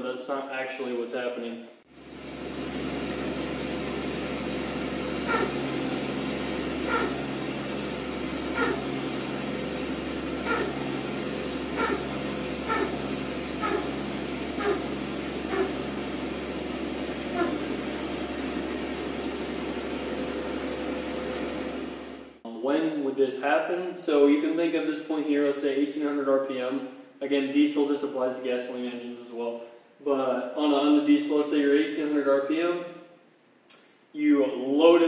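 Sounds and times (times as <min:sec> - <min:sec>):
engine running: 0:01.9 - 0:22.4
thin high turbo whine: 0:01.9 - 0:23.1.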